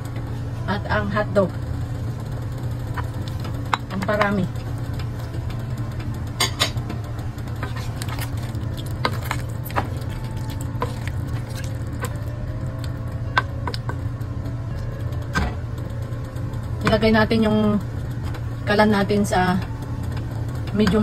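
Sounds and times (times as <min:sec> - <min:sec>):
steady low hum: 0:00.0 - 0:21.0
spatula stirring stew in a pot: 0:07.6 - 0:12.2.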